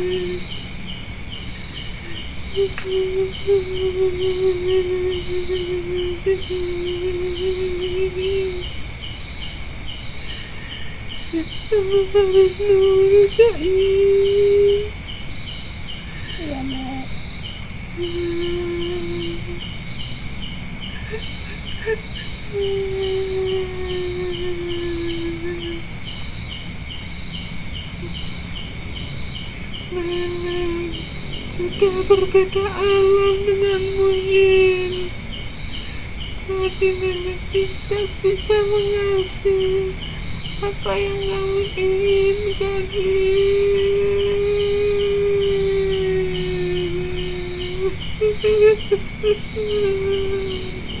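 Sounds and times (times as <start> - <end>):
cricket chirping: 0.0 - 51.0
insects trilling: 0.0 - 51.0
long low tone: 2.6 - 8.6, 18.0 - 19.6, 22.6 - 25.8.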